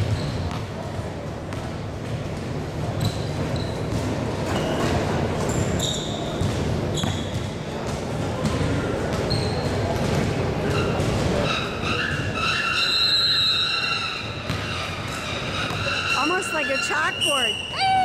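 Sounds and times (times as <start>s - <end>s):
shoe squeaks: 0.0s - 0.7s, 3.0s - 7.6s, 9.1s - 9.9s, 10.6s - 18.0s
murmur of voices: 0.0s - 18.0s.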